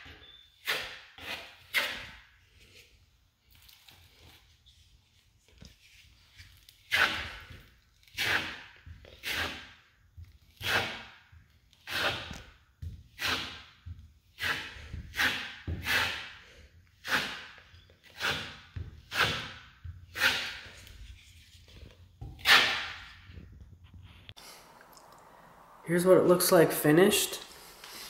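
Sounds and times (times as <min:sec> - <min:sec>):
putty knife scraping spackle: 0:00.0 - 0:02.9, 0:06.0 - 0:09.8, 0:10.5 - 0:12.5, 0:13.1 - 0:16.4, 0:17.0 - 0:23.4.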